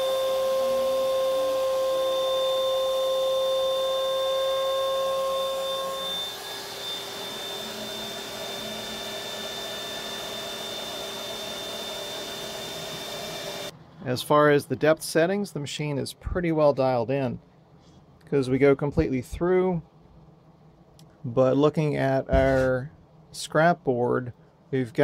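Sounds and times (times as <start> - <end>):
router spindle whining: 0.0 - 13.7
shop vacuum running: 0.0 - 13.7.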